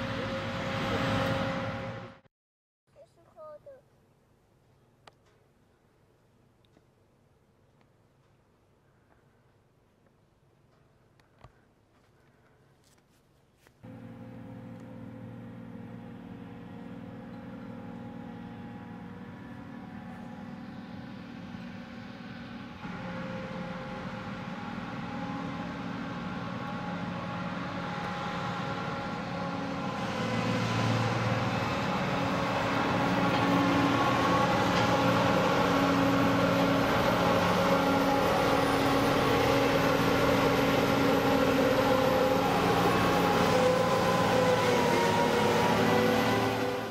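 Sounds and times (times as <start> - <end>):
combine harvester diesel engine: 0.0 - 2.2, 13.8 - 46.9.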